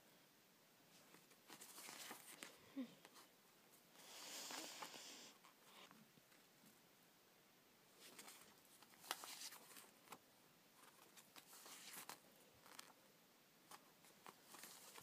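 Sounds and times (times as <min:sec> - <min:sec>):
paper cards rustling and tapping: 0:01.0 - 0:03.2, 0:08.0 - 0:10.2, 0:10.8 - 0:13.0, 0:13.7 - 0:15.0.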